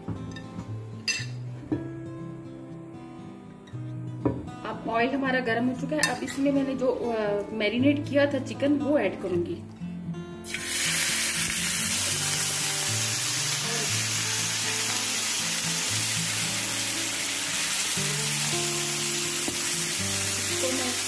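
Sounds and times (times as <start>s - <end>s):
background music: 0.0s - 21.0s
chicken sizzling in hot oil: 10.4s - 21.0s.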